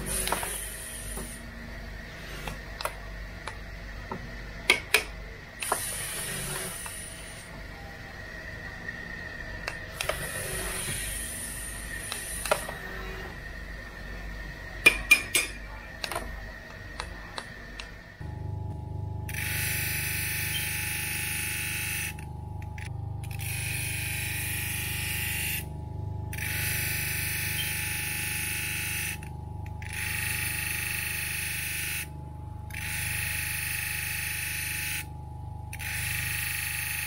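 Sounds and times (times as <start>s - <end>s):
steady high hum: 0.0s - 37.0s
hammer tapping crystal and metal: 14.8s - 16.2s.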